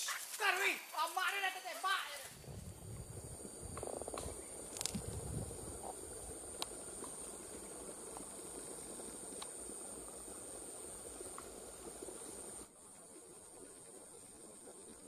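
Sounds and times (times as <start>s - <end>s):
even hiss: 0.0s - 15.0s
high-pitched insect drone: 0.0s - 15.0s
faint clicks: 3.7s - 5.2s, 5.8s - 7.3s, 9.3s - 9.6s.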